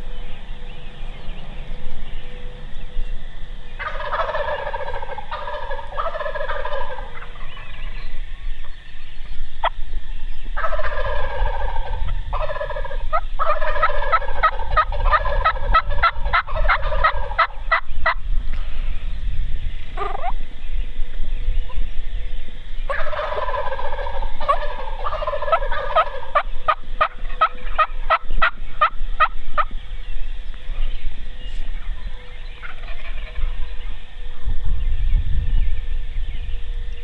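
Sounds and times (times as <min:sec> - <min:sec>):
wild turkeys gobbling: 0:03.7 - 0:08.8, 0:10.6 - 0:18.2, 0:20.0 - 0:20.4, 0:22.8 - 0:29.8, 0:30.7 - 0:34.5.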